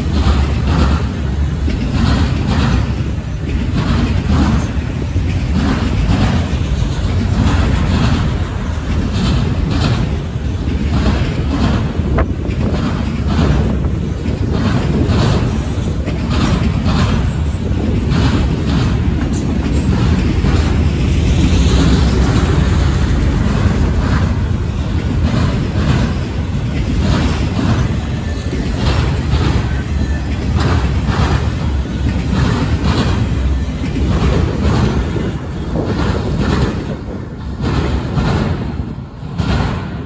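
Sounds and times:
low train rumble: 0.0s - 40.0s
train wheels clacking over rail joints: 0.0s - 40.0s.

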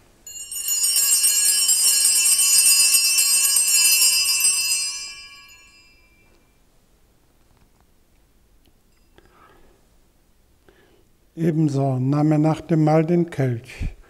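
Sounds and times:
small bells jingling: 0.0s - 6.4s.

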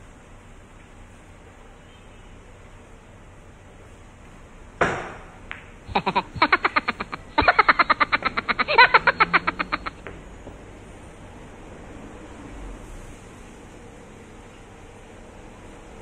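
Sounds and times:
rapid-fire laugh sound effect: 5.9s - 10.0s.

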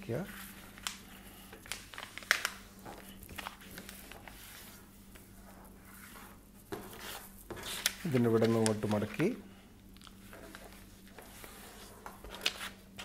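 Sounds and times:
paper rustling and sliding: 1.6s - 9.2s, 10.3s - 13.0s
soft brushing strokes: 3.9s - 8.6s, 10.2s - 12.2s.

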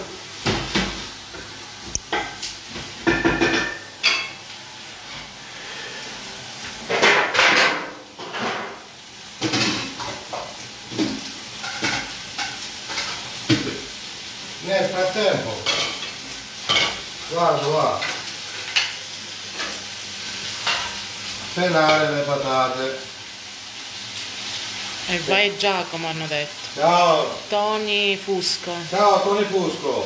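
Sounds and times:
food sizzling in a pot: 0.0s - 30.0s
pot and utensils clattering: 2.1s - 4.4s, 6.9s - 8.8s.

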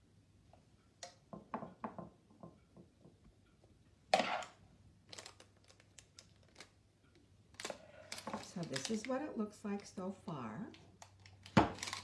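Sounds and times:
parchment rustling: 7.5s - 10.3s.

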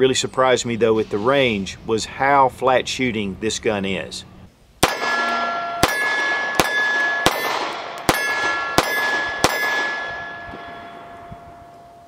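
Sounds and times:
pistol shots: 4.8s - 10.8s
steel targets ringing: 4.8s - 12.0s.

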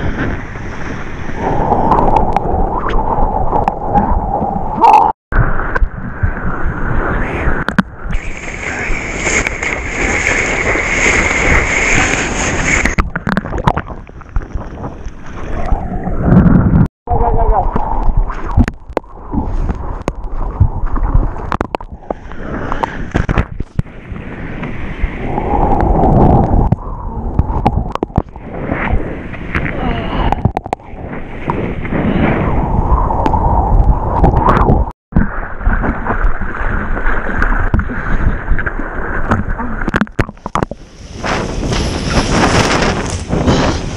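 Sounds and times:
wind buffeting the camera: 0.0s - 43.9s
sea water rushing and splashing: 5.4s - 16.8s, 17.4s - 43.9s
water splashing: 7.5s - 16.7s
rushing water: 7.6s - 16.2s.

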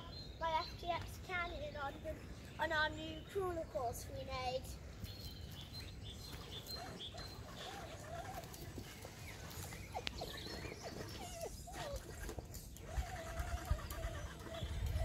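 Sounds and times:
dog whining: 6.7s - 15.0s.

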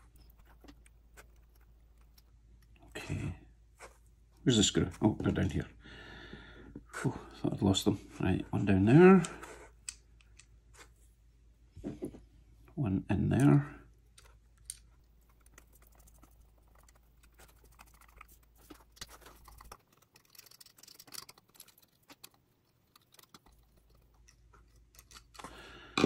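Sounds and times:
plastic parts handled: 13.4s - 26.0s.

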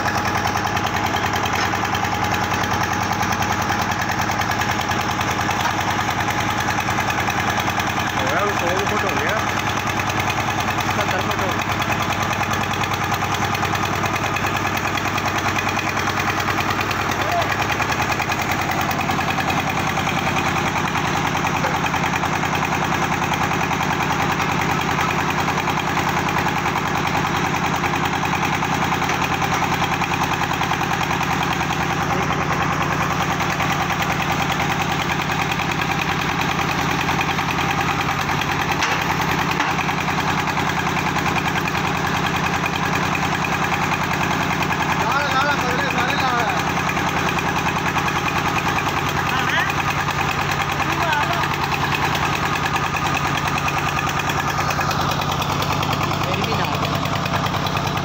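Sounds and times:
diesel engine running steadily: 0.0s - 58.0s.

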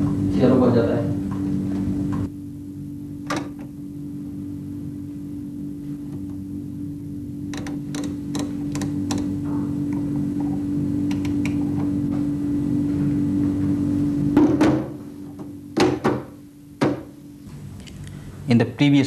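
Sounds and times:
machine hum: 0.0s - 19.0s
knocks: 14.4s - 17.1s.

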